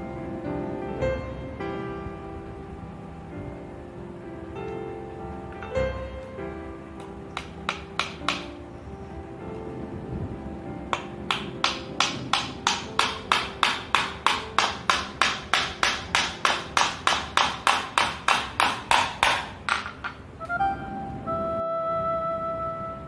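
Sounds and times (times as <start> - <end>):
hammer driving a nail into wood: 7.4 - 8.5, 10.9 - 20.2.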